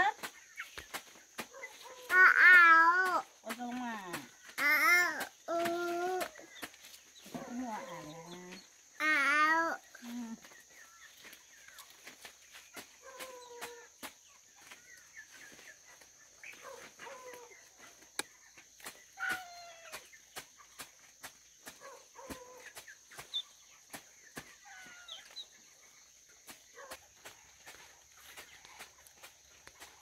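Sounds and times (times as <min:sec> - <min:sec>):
chickens squawking: 0:00.3 - 0:03.1, 0:10.5 - 0:18.2, 0:18.8 - 0:30.0.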